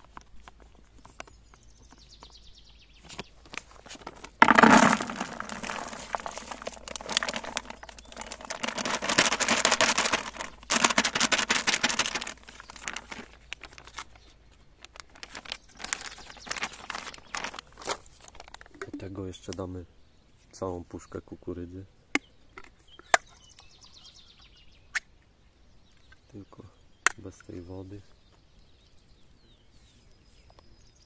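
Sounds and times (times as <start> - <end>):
plastic bag crinkling: 3.4 - 19.0
grains rattling in a container: 3.8 - 18.7.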